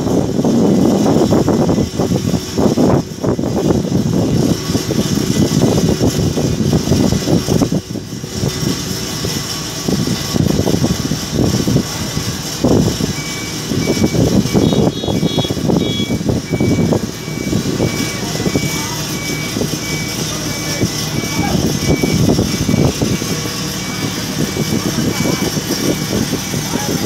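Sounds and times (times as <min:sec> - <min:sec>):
heavy machinery rumbling: 0:00.0 - 0:27.0
high electronic beeps: 0:13.1 - 0:27.0.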